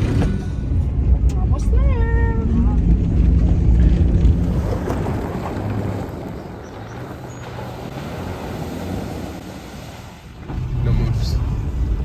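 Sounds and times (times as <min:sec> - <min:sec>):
truck engine hum: 0:00.0 - 0:12.0
tyres on gravel road: 0:00.0 - 0:12.0.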